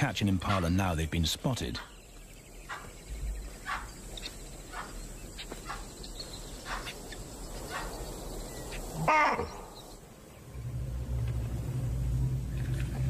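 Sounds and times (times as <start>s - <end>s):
animal alarm barks: 2.7s - 3.0s, 3.6s - 4.0s, 4.7s - 5.0s, 5.6s - 5.9s, 7.7s - 8.0s.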